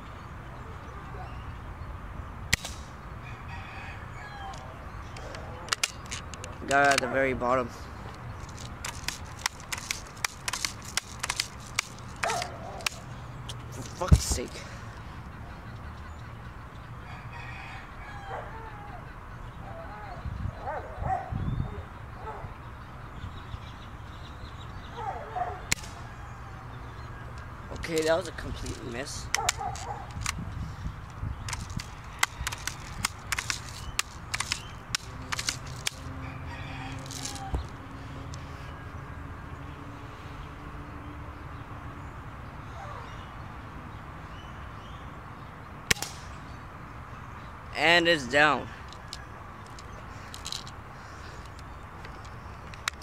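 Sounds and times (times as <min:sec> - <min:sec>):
air rifle clicks and taps: 0:02.5 - 0:02.9, 0:04.5 - 0:07.1, 0:08.1 - 0:14.4, 0:25.7 - 0:26.0, 0:27.3 - 0:30.4, 0:31.0 - 0:36.1, 0:37.0 - 0:37.7, 0:48.8 - 0:50.8, 0:51.4 - 0:53.0.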